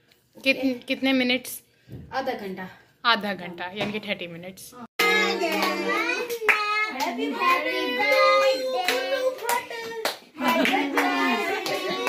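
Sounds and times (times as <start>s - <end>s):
group singing birthday song: 5.0s - 12.0s
hands clapping: 5.0s - 12.0s.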